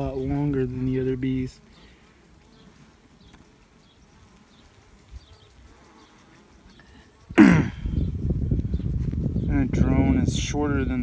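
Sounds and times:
honeybees buzzing: 0:00.0 - 0:11.0
person coughing: 0:07.4 - 0:07.9.

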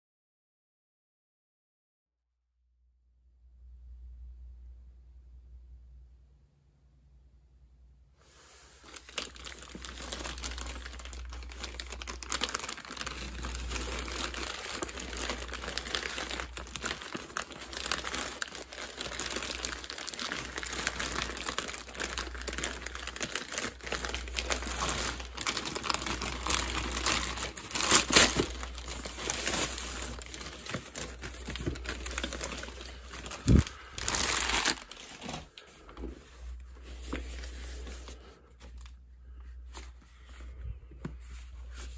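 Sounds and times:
wrapping crinkling: 0:08.7 - 0:41.9.

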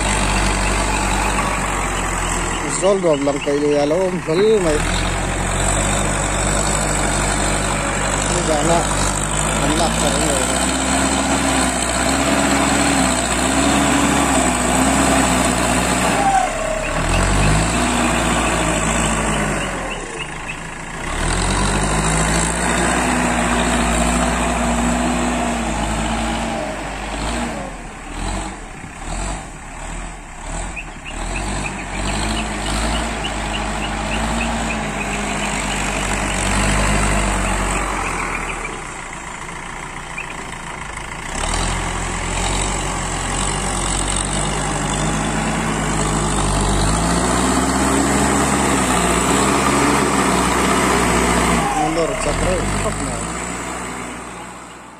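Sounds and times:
diesel engine under load: 0:00.0 - 0:54.9.

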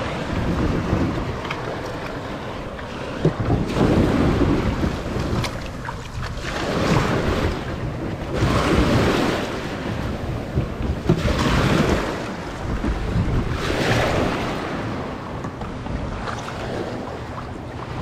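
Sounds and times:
wind buffeting microphone: 0:00.0 - 0:18.0
small waves washing over stones: 0:02.9 - 0:09.9.

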